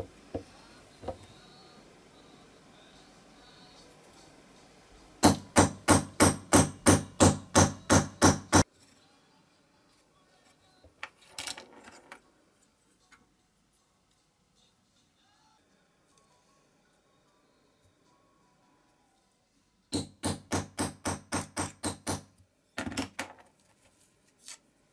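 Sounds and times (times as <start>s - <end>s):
small hammer tapping: 5.2s - 8.6s.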